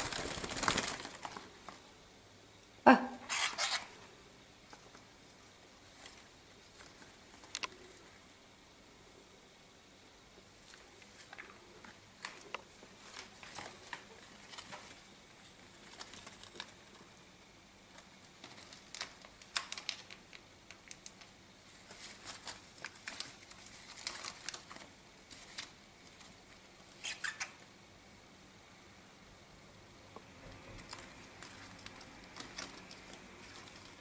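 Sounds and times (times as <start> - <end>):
bird chewing leaves: 30.5 - 34.0.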